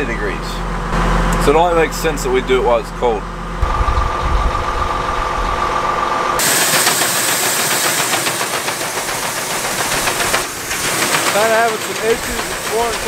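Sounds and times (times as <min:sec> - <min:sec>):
farm machinery rumbling: 0:03.6 - 0:13.0
machinery high whine: 0:03.6 - 0:13.0
grain pouring into trailer: 0:10.5 - 0:13.0.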